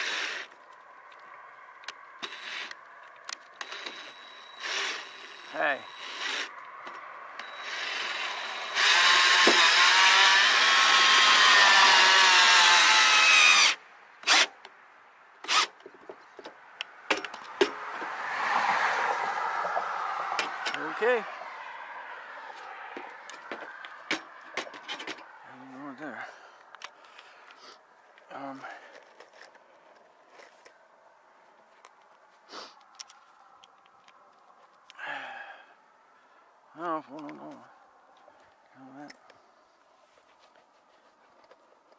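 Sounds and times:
cordless drill driving screw into metal: 0:02.2 - 0:02.8, 0:03.6 - 0:06.6, 0:07.4 - 0:14.6, 0:15.4 - 0:15.8
handling clicks and rustles: 0:15.7 - 0:18.1, 0:26.6 - 0:35.0, 0:37.1 - 0:41.9.

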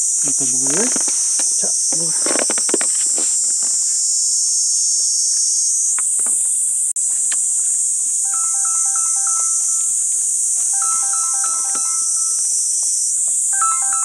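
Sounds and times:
insects chirring: 0:00.0 - 0:14.0
mobile phone ringtone: 0:08.2 - 0:14.0.

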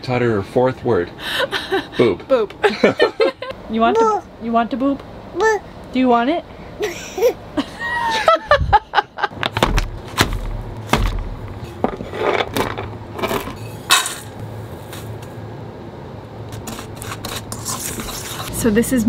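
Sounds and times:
toddler laughing: 0:06.8 - 0:09.0.

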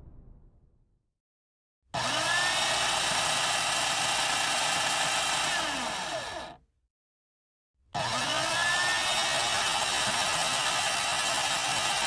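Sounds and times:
electric coffee grinder running: 0:02.0 - 0:06.6, 0:08.0 - 0:12.0.

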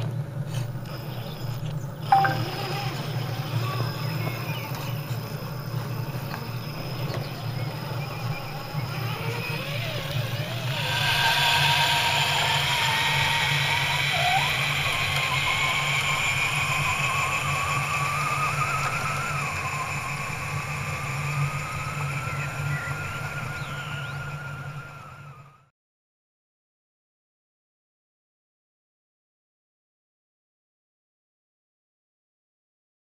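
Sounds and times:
rc truck motors whining: 0:00.0 - 0:25.7.

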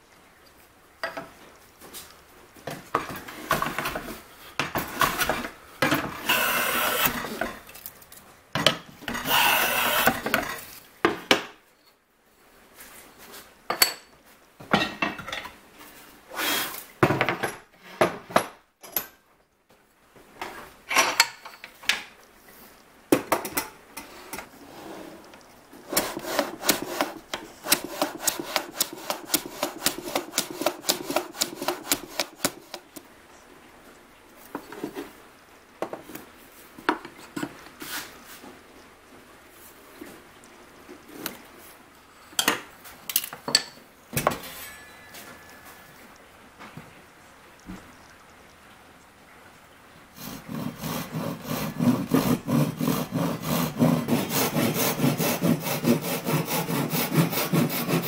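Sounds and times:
hand plane shaving board: 0:06.2 - 0:07.5, 0:09.1 - 0:10.5, 0:25.9 - 0:33.0, 0:50.2 - 0:58.0
short scraping strokes: 0:06.2 - 0:07.5, 0:09.1 - 0:10.6, 0:25.9 - 0:33.0.

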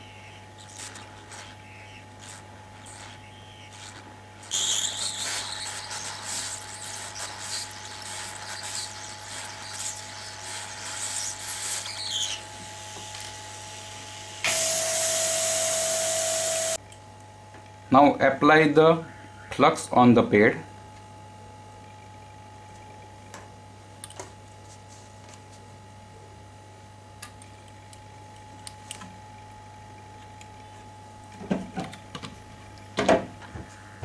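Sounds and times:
low steady hum: 0:00.0 - 0:34.0
hot-air nozzle hissing: 0:02.2 - 0:16.8
steady tone: 0:12.8 - 0:16.8.

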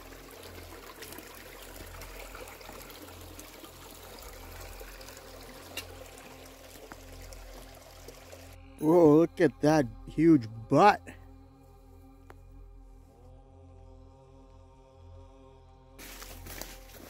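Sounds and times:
stream trickling among rocks: 0:00.0 - 0:11.0.

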